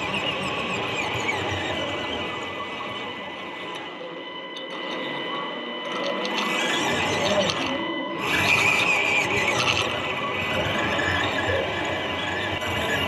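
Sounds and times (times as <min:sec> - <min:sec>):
small electric motor whining: 0:00.0 - 0:13.0.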